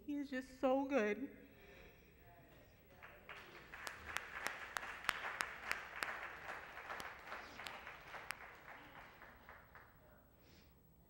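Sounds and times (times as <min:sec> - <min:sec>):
congregation applauding: 0:02.9 - 0:09.9
person clapping loudly: 0:02.9 - 0:09.9.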